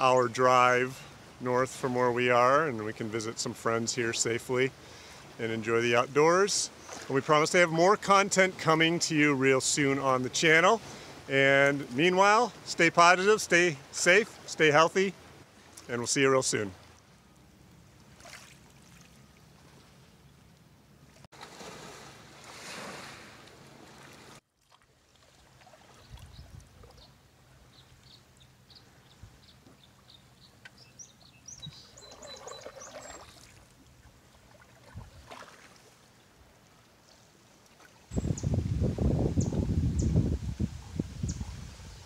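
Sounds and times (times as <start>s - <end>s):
canoe paddle splashing water: 6.4s - 9.0s, 16.6s - 20.2s, 21.0s - 28.0s, 29.6s - 38.1s
short high bird chirps: 30.8s - 33.4s.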